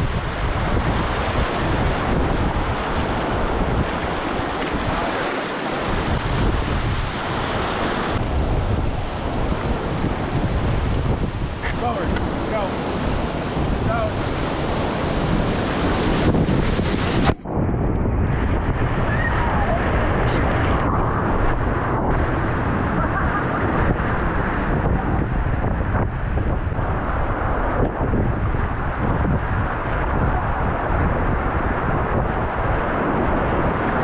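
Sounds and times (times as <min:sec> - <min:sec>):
whitewater rapids rushing: 0:00.0 - 0:10.2
wave splashing over raft: 0:00.0 - 0:17.6, 0:18.3 - 0:34.0.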